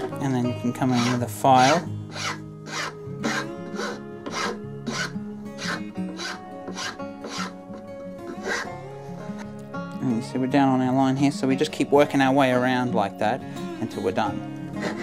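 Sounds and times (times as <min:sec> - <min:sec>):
file rasping on wood: 0:00.8 - 0:07.6, 0:08.3 - 0:09.4, 0:14.8 - 0:15.0.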